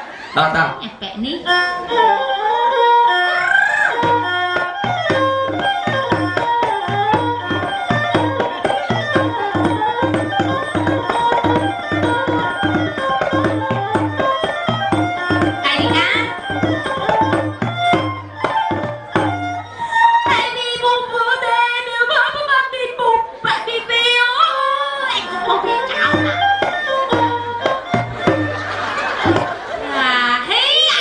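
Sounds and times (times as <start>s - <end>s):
steady drum beat: 3.9s - 19.7s, 25.8s - 29.8s.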